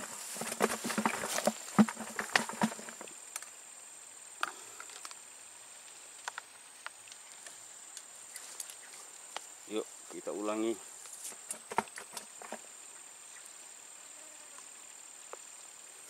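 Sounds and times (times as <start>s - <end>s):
irregular knocks and rustles: 0.0s - 3.2s, 11.0s - 12.7s
high insect drone: 0.0s - 16.0s.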